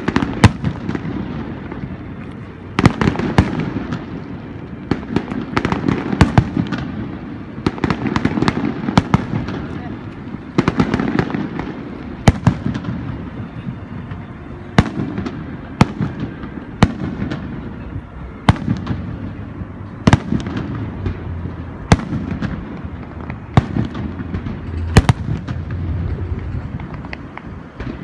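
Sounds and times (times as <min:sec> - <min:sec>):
steady low rumble: 0:00.0 - 0:28.0
firework shells bursting: 0:20.1 - 0:28.0.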